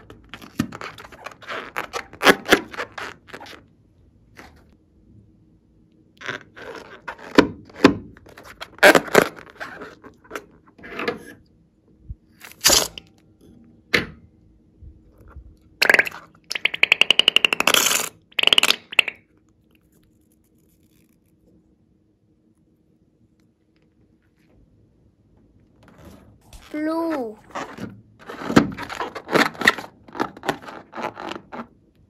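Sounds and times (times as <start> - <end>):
balloon rubbing and squeaking: 0.0 - 3.7, 6.2 - 10.4, 12.5 - 13.0, 15.8 - 19.2, 25.9 - 31.7.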